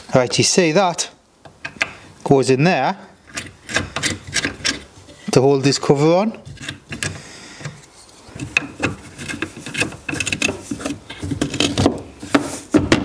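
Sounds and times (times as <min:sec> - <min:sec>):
plastic rubbing and scraping: 0:03.2 - 0:13.0.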